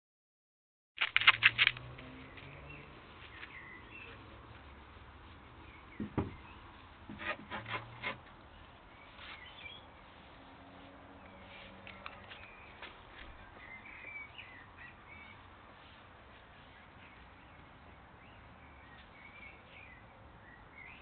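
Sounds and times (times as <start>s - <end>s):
sharp clicks: 1.0s - 2.5s
ferrets scratching in soil and grass: 1.0s - 19.6s.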